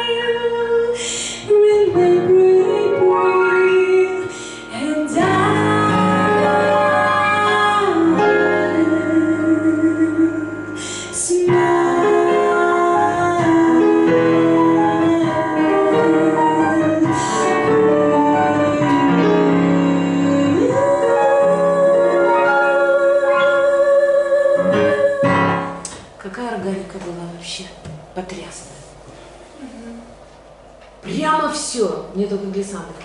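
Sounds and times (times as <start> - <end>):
woman singing jazz ballad: 0.0 - 25.9
digital piano accompaniment: 1.4 - 26.2.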